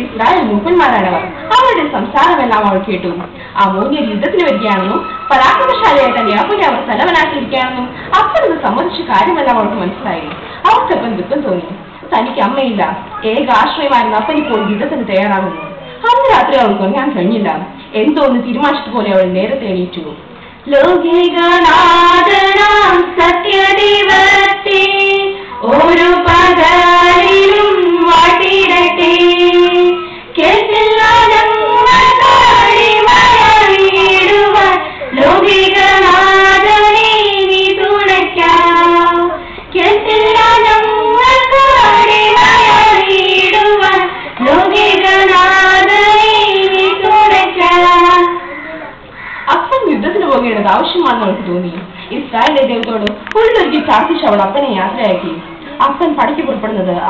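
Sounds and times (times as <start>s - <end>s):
girl singing into a microphone: 20.7s - 49.0s.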